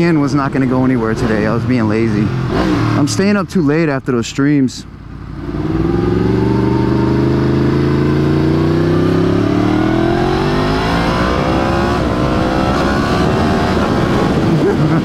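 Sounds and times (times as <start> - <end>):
motorcycle engine accelerating: 0.4 - 3.4, 4.9 - 15.0
wind rushing: 9.9 - 15.0.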